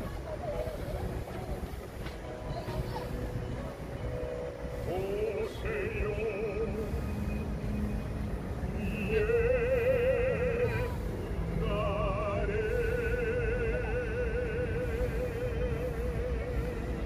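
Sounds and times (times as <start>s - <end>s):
operatic baritone singing: 4.9s - 7.1s, 8.7s - 17.0s.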